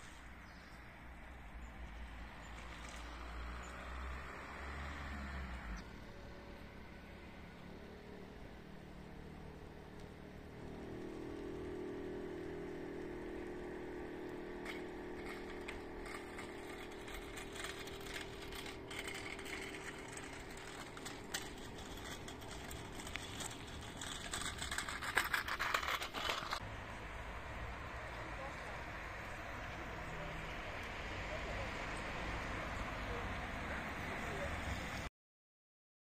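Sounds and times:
wheels rolling on asphalt: 0:00.0 - 0:35.1
low hum: 0:05.8 - 0:28.5.

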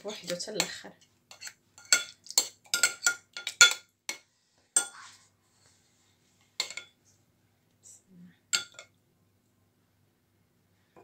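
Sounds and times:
metal spoon clinking on ceramic bowl: 0:01.3 - 0:04.2, 0:06.6 - 0:06.9, 0:08.5 - 0:08.9.

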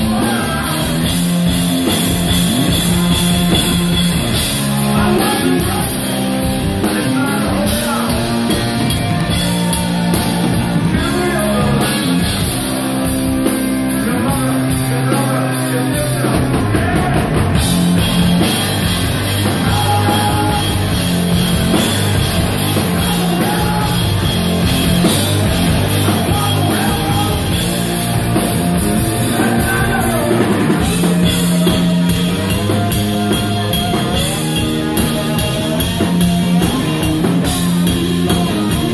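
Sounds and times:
person singing: 0:00.0 - 0:01.4, 0:04.8 - 0:17.6, 0:19.4 - 0:21.0, 0:22.6 - 0:24.3, 0:25.0 - 0:28.2, 0:28.9 - 0:38.9
hard rock band playing: 0:00.0 - 0:38.9.

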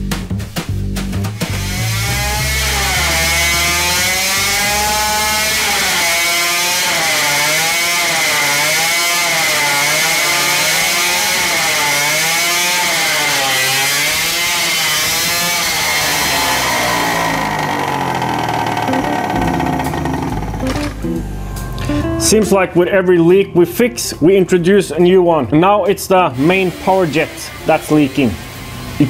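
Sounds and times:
two-stroke engine revving: 0:01.4 - 0:21.2, 0:26.2 - 0:29.0.

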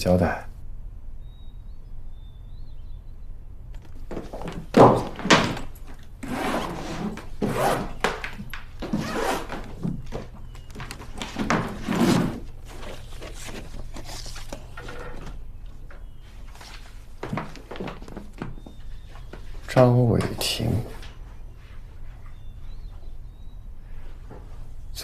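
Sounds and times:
knocks and rustles of handling: 0:03.8 - 0:23.2
case set down thunks: 0:04.1 - 0:06.0.

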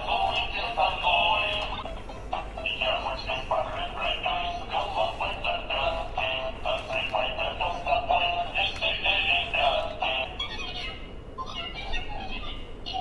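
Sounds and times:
tinny synthesized sung melody: 0:00.0 - 0:10.4.

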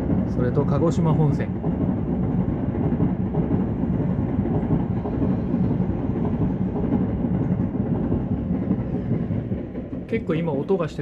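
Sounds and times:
trains rumbling past: 0:00.0 - 0:11.0.

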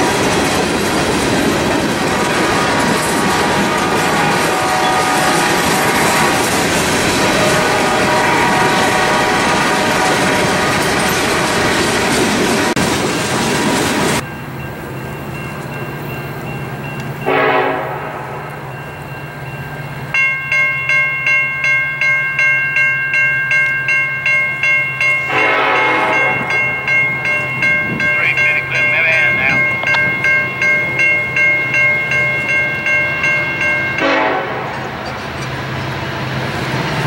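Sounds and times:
crossing bells ringing: 0:00.0 - 0:11.9, 0:14.2 - 0:35.8
freight cars rumbling and clattering: 0:00.0 - 0:17.3, 0:26.0 - 0:33.7
locomotive horn blast: 0:02.1 - 0:11.6, 0:17.2 - 0:18.6, 0:25.3 - 0:26.6, 0:34.0 - 0:35.0.

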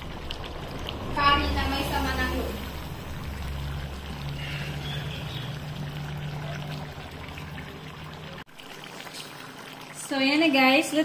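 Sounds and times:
curry bubbling in pot: 0:00.0 - 0:11.0.

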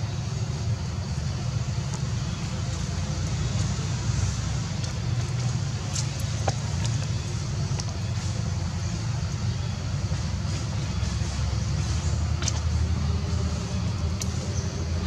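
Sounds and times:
low outdoor rumble: 0:00.0 - 0:15.0
faint high ticks: 0:14.0 - 0:14.7.

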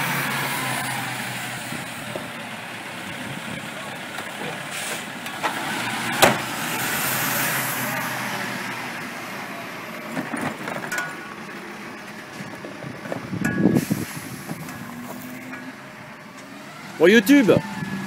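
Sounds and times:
garbage truck engine running: 0:00.0 - 0:18.0.

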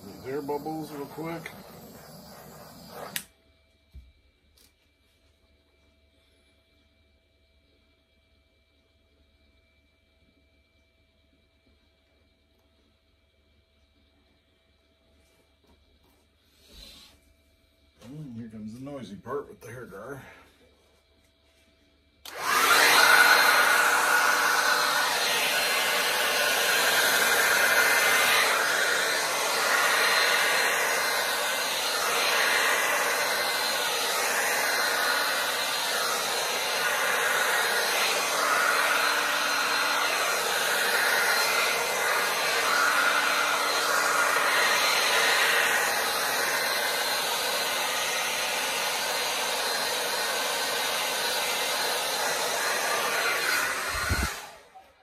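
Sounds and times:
hair dryer blowing: 0:00.0 - 0:03.3, 0:22.2 - 0:55.0.

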